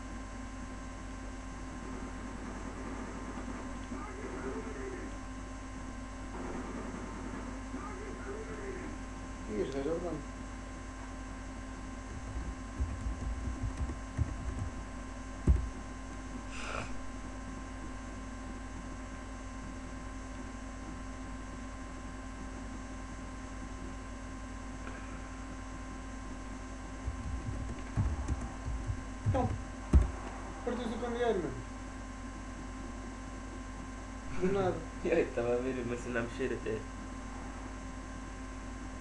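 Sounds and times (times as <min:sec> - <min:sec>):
electrical mains hum: 0:00.0 - 0:39.0
low thumps: 0:12.1 - 0:16.2, 0:27.0 - 0:30.6.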